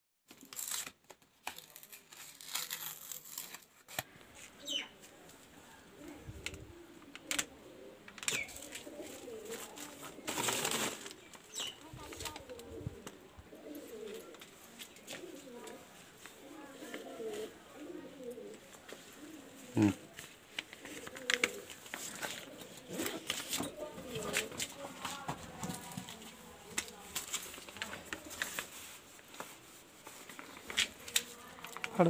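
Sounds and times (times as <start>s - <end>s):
pigeons cooing: 5.6s - 27.1s
packaging rustling and clicking: 20.2s - 29.6s, 30.2s - 32.0s.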